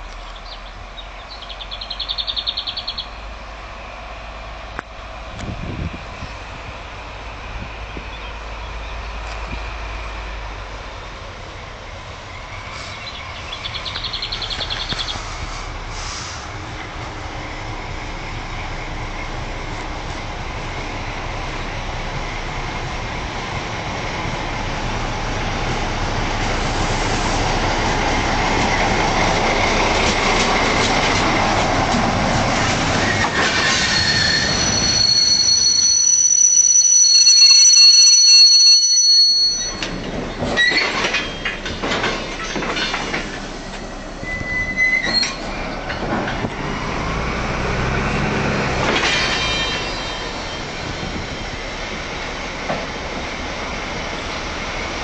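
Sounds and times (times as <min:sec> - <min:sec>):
diesel locomotive train rumbling: 0:00.0 - 0:55.0
train wheels clattering: 0:24.2 - 0:47.0, 0:48.2 - 0:55.0
train wheels squealing: 0:33.0 - 0:41.7, 0:43.7 - 0:46.0, 0:49.0 - 0:51.9.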